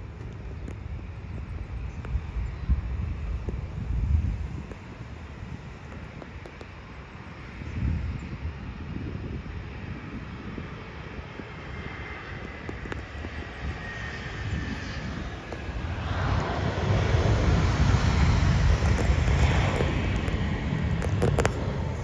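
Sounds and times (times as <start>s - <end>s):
jet engines taxiing: 0.0s - 22.0s
jet engine hiss: 10.4s - 22.0s.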